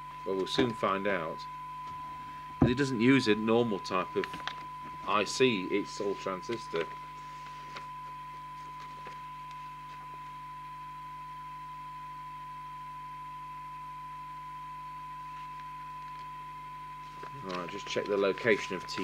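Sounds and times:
low steady hum: 0.0s - 19.0s
steady test tone: 0.0s - 19.0s
paper rustling: 5.8s - 10.0s, 17.0s - 19.0s.

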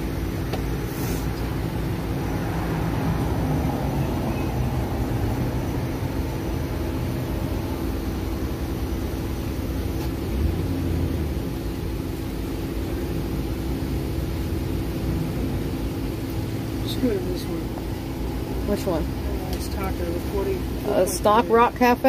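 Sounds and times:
steady hum: 0.0s - 22.0s
street traffic rumble: 0.0s - 22.0s.

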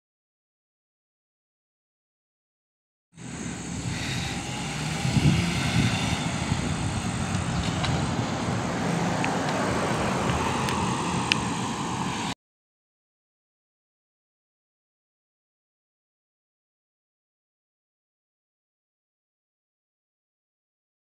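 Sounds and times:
traffic driving past: 3.2s - 12.4s.

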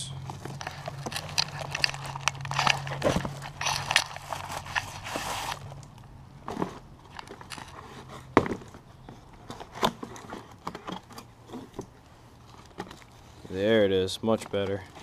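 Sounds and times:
cardboard tearing and rustling: 0.2s - 5.8s.

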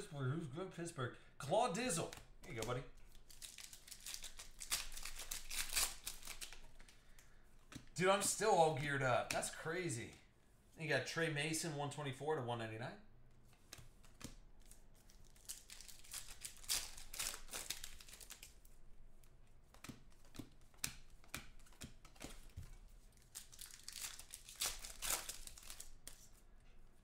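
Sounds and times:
card wrappers crinkling: 1.8s - 7.2s, 13.6s - 18.8s, 19.7s - 26.4s.

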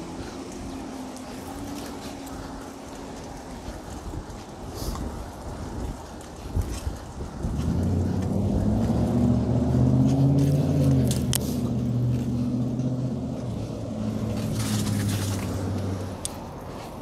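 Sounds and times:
vehicle engine running: 7.2s - 17.0s.

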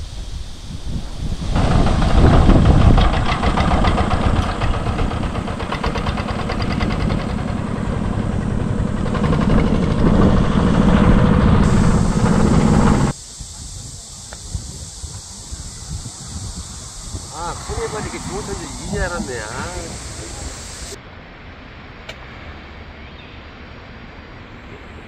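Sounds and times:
diesel engine chugging: 1.5s - 13.2s, 16.4s - 21.0s.

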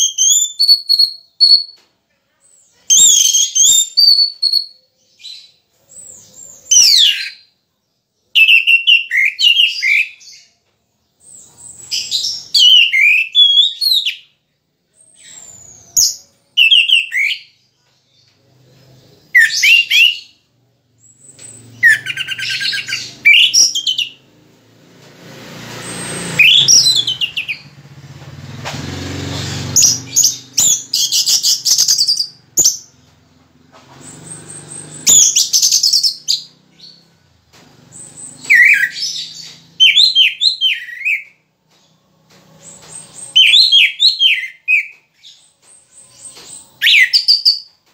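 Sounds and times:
bird singing: 2.7s - 24.4s, 25.9s - 27.9s, 34.0s - 47.9s.

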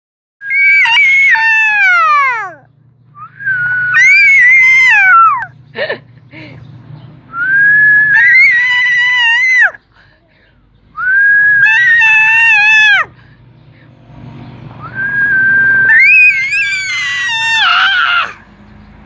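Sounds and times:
toddler squealing: 0.4s - 2.7s, 3.6s - 5.5s, 7.8s - 9.8s, 11.2s - 13.1s, 15.6s - 18.4s.

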